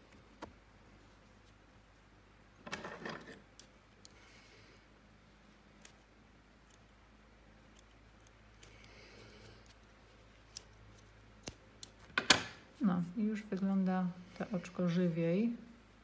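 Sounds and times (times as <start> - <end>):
soft scratchy rustles: 0.8 - 2.2.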